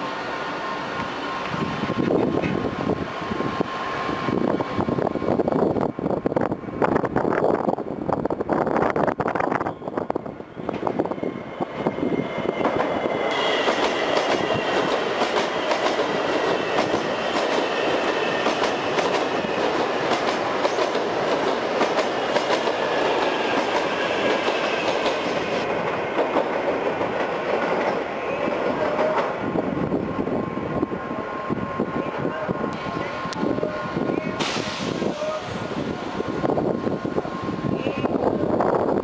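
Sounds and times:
train high whine: 0.0s - 39.0s
train wheels clicking over rail joints: 12.5s - 28.1s.

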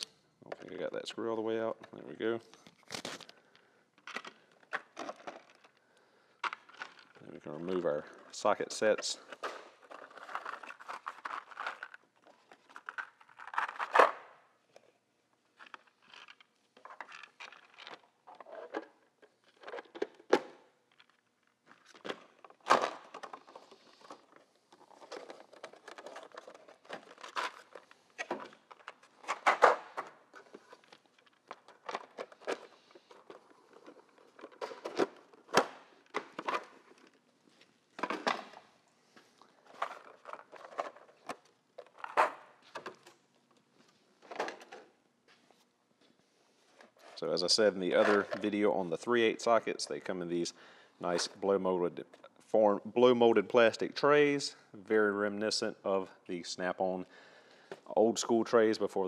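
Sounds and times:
hard plastic clicking and crinkling: 1.8s - 8.2s, 9.0s - 14.9s, 15.6s - 44.9s.

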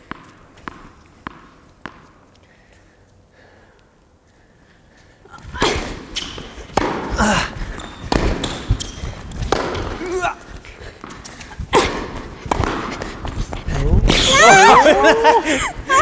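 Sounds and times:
racket hitting ball: 0.0s - 2.2s, 5.6s - 14.3s
tennis ball bouncing: 0.0s - 2.4s, 5.4s - 13.7s
footsteps and shoe squeaks: 5.3s - 6.9s, 7.6s - 14.8s.

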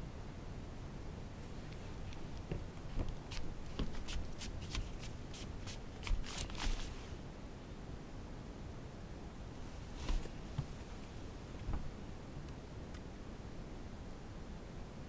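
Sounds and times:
running footsteps on hardwood floor: 2.5s - 4.4s.

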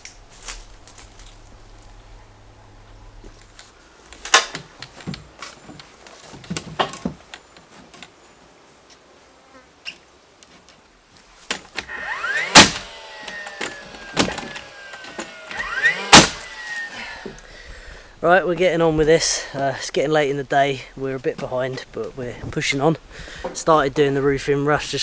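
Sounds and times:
nail gun firing crack: 11.5s - 16.9s
nail gun motor whine: 11.7s - 17.5s.

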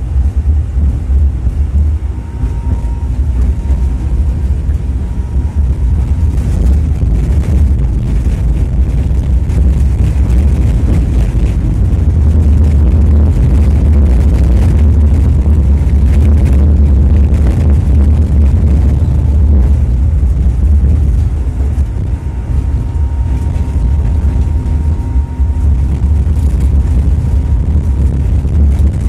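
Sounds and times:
tram rumbling on track: 0.0s - 29.0s.

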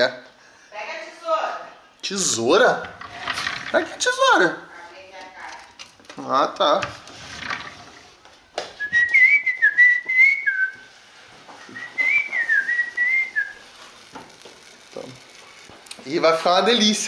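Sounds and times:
man whistling a tune: 8.8s - 10.8s, 11.6s - 13.6s.

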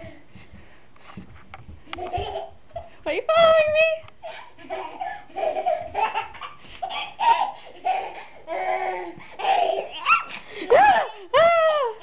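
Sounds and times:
toddler laughing: 2.0s - 2.9s, 4.2s - 10.4s.

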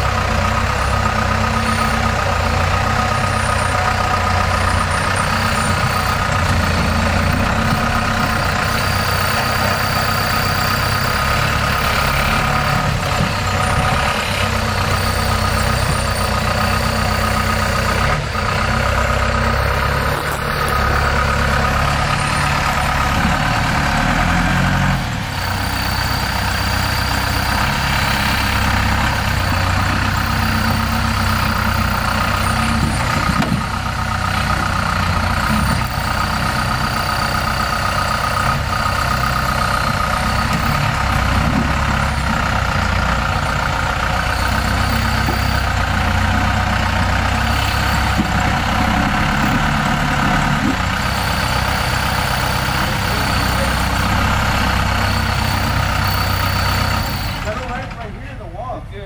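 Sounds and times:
off-road vehicle engine running: 0.0s - 59.0s.

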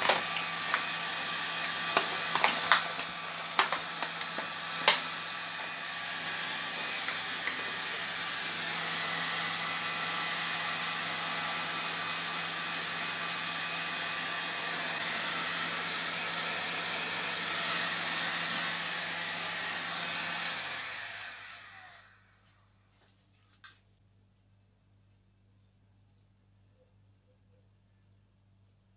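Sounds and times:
heat gun blowing hot air: 0.0s - 22.4s.

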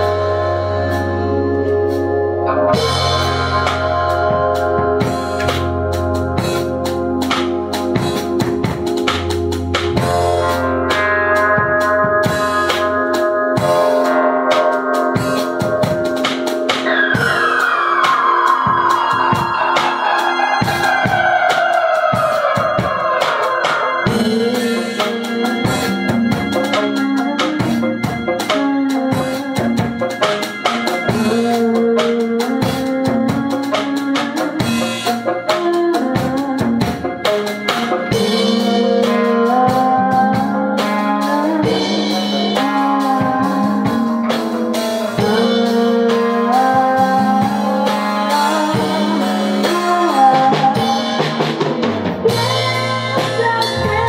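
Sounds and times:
rock band playing: 0.0s - 54.0s
woman singing: 20.0s - 26.8s, 38.2s - 44.4s, 45.2s - 51.4s, 52.2s - 54.0s.

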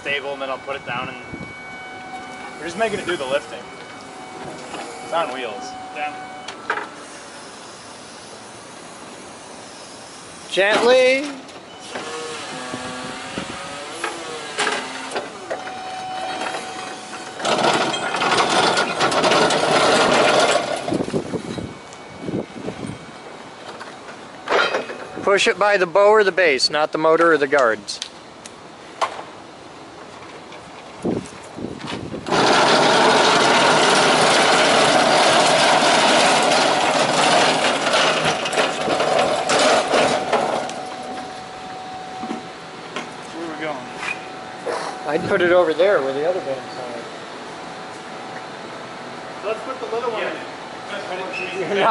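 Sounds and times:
forklift whining and squeaking: 0.0s - 25.5s, 31.9s - 49.4s, 51.0s - 51.9s
casters rattling on asphalt: 17.2s - 21.8s, 30.0s - 41.0s.

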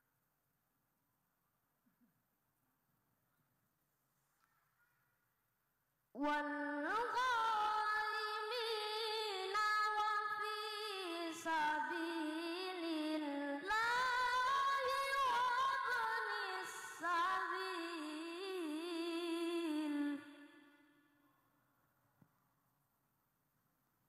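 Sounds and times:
boy reciting melodically: 6.2s - 20.4s.

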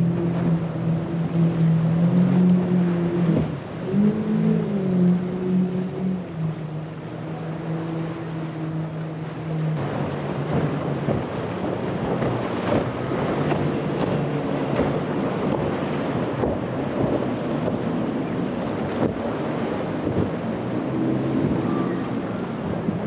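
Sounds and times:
boat outboard engines droning: 0.0s - 23.0s
wind on microphone: 0.0s - 23.0s
hull spray: 9.4s - 23.0s.

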